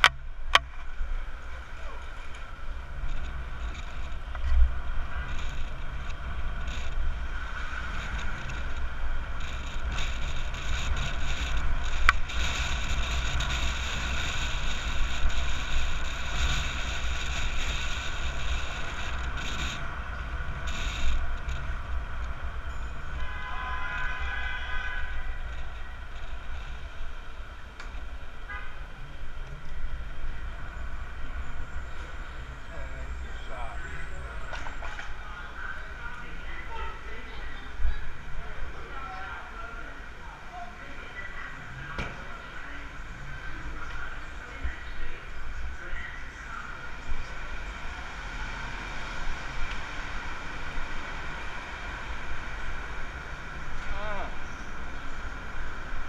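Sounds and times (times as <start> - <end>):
street traffic noise: 0.0 - 56.0
wind rumble on microphone: 2.1 - 23.3.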